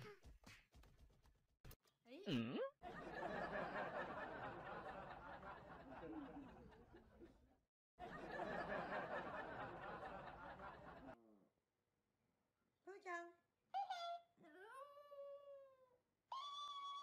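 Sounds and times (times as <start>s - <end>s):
crowd laughing: 2.8s - 11.2s.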